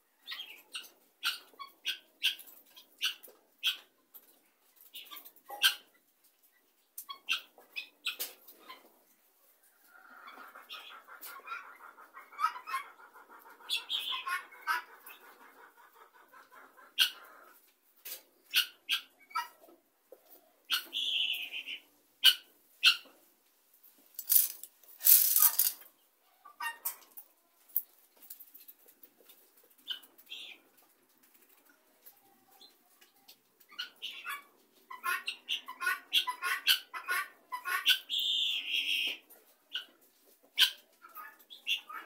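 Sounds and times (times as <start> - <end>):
guineafowl flock calling: 10.0 - 17.5, 20.3 - 23.1, 33.8 - 39.2, 40.6 - 42.0.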